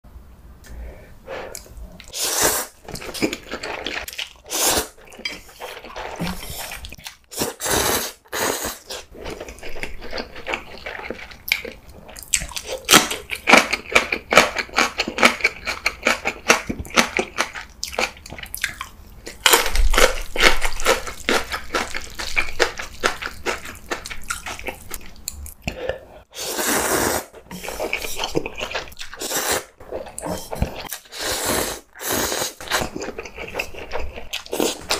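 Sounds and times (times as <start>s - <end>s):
slurping noodles: 2.0s - 5.0s, 5.6s - 9.6s, 26.3s - 33.0s.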